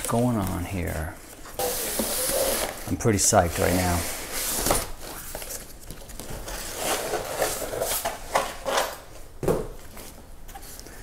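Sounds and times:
cardboard rustling and scraping: 1.6s - 8.9s.

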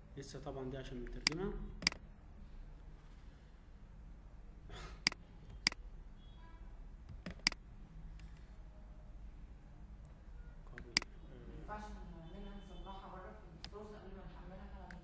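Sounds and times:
low steady hum: 0.0s - 15.0s
mouse buttons clicking: 7.1s - 7.6s.

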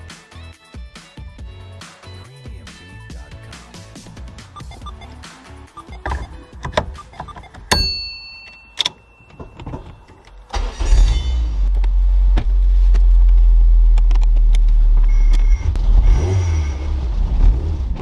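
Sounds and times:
clicks: 5.8s - 10.4s
sharp clunk with ringing: 7.7s - 10.2s
car engine starting and rumbling: 8.5s - 18.0s.

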